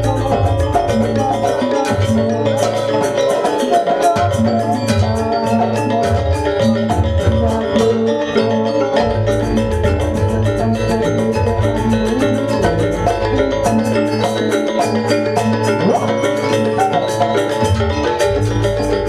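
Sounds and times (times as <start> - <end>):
drums: 0.0 - 19.0
metal mallet instruments: 0.0 - 19.0
sustained low notes: 9.0 - 14.2.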